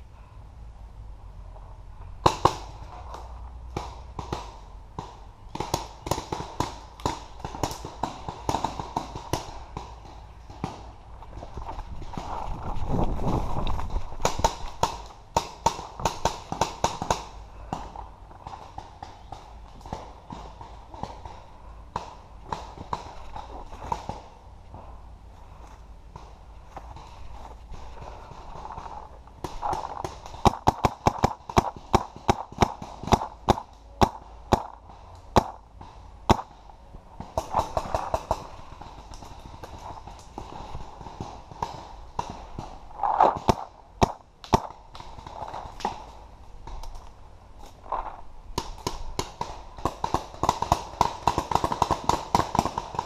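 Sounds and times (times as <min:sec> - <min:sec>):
rustling through brush: 0:01.5 - 0:53.0
distant paintball shots: 0:02.2 - 0:12.4, 0:14.2 - 0:25.0, 0:26.1 - 0:47.0, 0:47.9 - 0:53.0.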